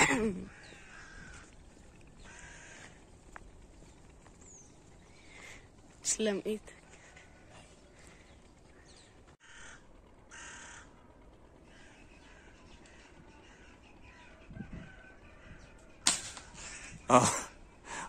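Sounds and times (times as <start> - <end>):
crow cawing: 0.5 - 3.0, 8.7 - 11.0, 11.6 - 14.3.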